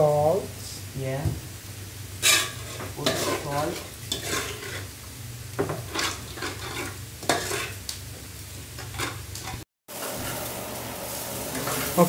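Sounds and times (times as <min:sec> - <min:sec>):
frying sizzle: 0:00.0 - 0:12.0
spoon scraping metal pot: 0:02.2 - 0:04.9, 0:05.7 - 0:07.8.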